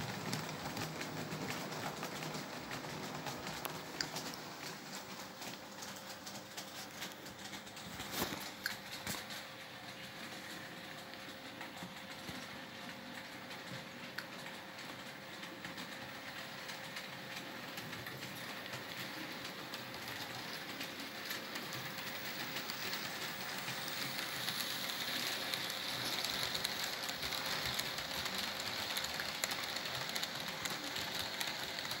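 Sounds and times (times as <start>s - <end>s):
model train rattling on track: 13.1s - 32.0s.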